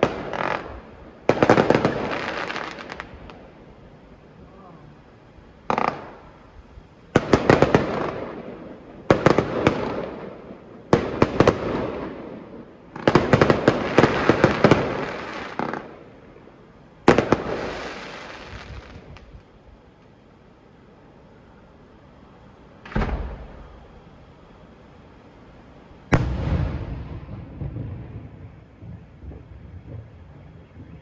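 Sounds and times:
fireworks bangs and crackling: 0.0 - 3.7, 5.6 - 6.5, 7.1 - 19.5, 22.8 - 23.9, 26.1 - 31.0.

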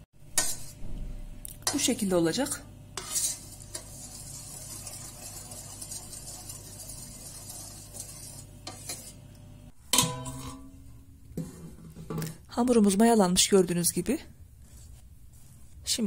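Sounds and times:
spoon stirring liquid in bowl: 0.3 - 0.8, 3.0 - 9.4.

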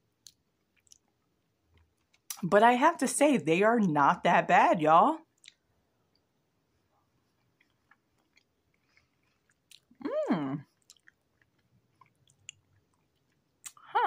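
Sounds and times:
person chewing: 0.2 - 2.4, 7.0 - 13.8.

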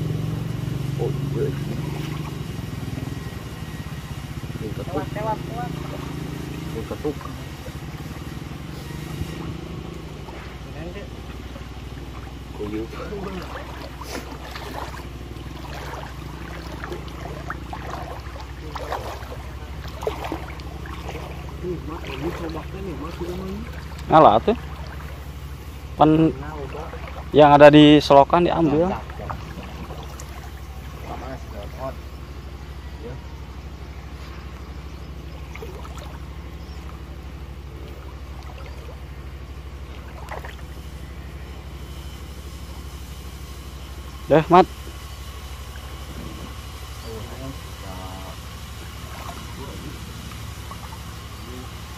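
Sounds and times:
low pulsing drone: 0.0 - 51.9
steady low hum: 0.0 - 51.9
stream water splashing: 0.0 - 51.9
hands splashing in shallow water: 11.3 - 25.8, 28.6 - 31.5, 34.2 - 37.1, 37.8 - 39.1, 39.8 - 40.8, 48.8 - 51.4.

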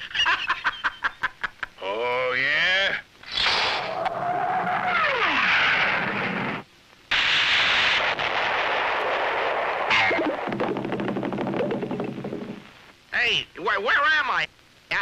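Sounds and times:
cartoon explosion blast: 3.3 - 4.2, 7.1 - 12.6.

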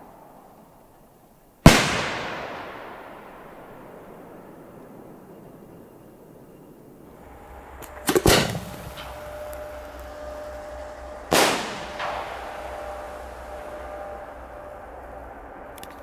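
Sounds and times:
firework burst bang echoing: 1.6 - 4.9, 7.1 - 16.0
firework shell launch bang: 1.7 - 3.3, 7.2 - 16.0.

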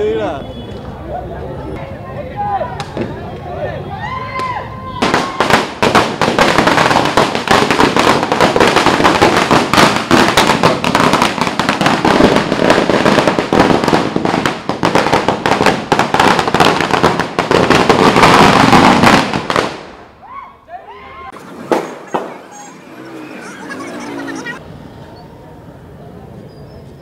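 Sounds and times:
firecrackers banging rapidly: 5.0 - 20.1, 21.3 - 22.9.

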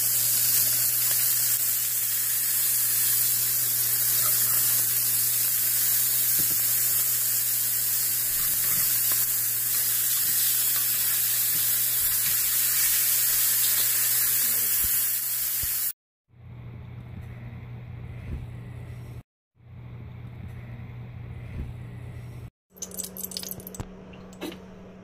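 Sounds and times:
steaks sizzling in a frying pan: 0.0 - 15.9.

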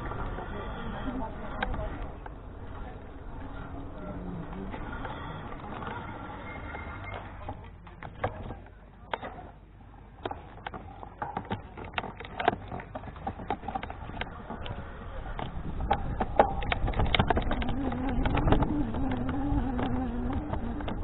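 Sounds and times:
wind and tyre rumble: 0.0 - 8.6, 11.6 - 21.0
e-bike rattling clicks and knocks: 10.2 - 21.0.

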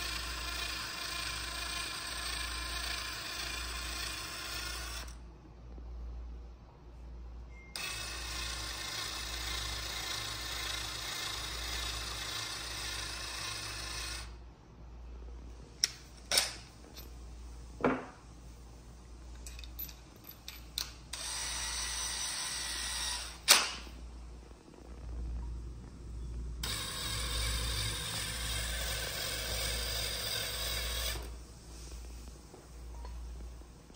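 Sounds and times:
cordless drill spinning: 0.0 - 5.2, 7.8 - 14.4, 21.1 - 23.5, 26.6 - 31.3.

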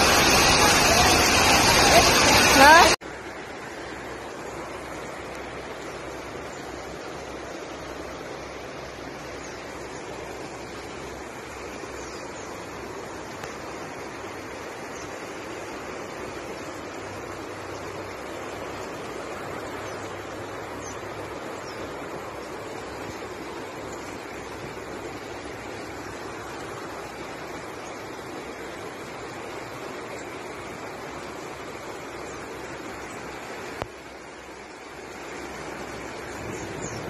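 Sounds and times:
rushing floodwater: 0.0 - 37.0.

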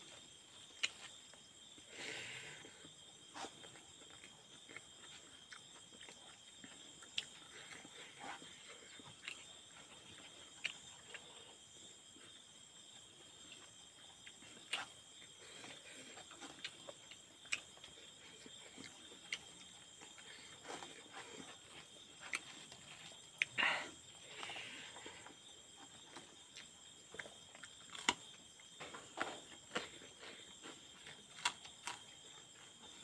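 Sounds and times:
chewing and lip smacks: 3.4 - 11.4, 13.4 - 23.6, 25.3 - 32.7.

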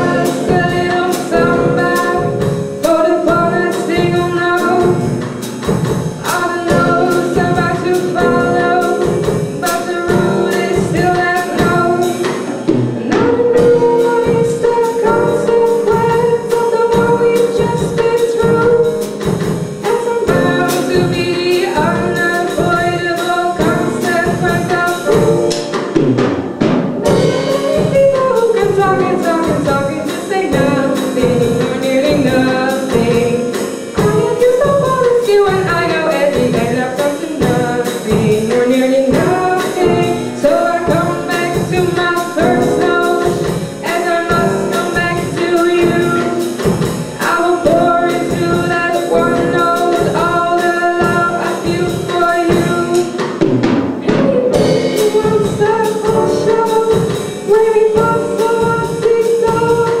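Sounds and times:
woman singing: 0.0 - 25.6, 27.0 - 53.4, 54.0 - 60.0
drum kit: 0.0 - 60.0
piano: 0.0 - 60.0.

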